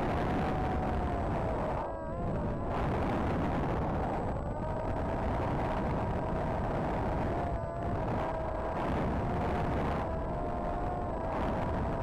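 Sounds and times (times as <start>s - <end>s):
electric motor and propeller whine: 0.0s - 12.0s
wind rumble on microphone: 0.0s - 12.0s.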